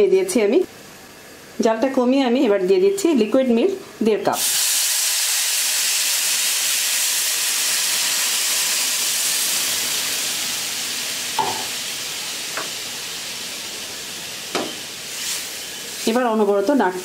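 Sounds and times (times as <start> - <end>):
milk sizzling in hot pan: 4.3 - 17.0.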